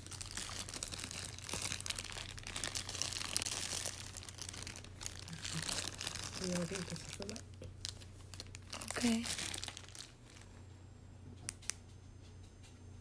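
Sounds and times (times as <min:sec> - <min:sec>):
plastic packaging crinkling: 0:00.0 - 0:10.6.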